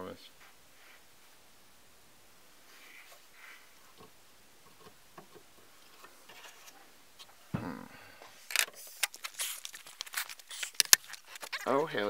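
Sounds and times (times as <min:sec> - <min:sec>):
rustling handling noises: 0:02.7 - 0:07.4, 0:08.3 - 0:12.0.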